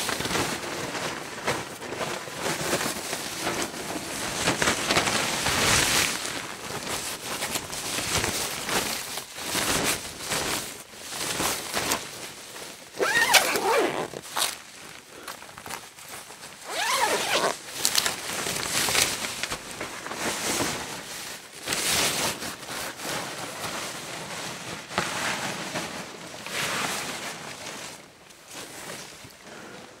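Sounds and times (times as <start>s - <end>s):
suit material rustling: 12.6s - 15.0s, 15.6s - 20.8s
zipper: 13.0s - 14.6s, 16.6s - 17.6s.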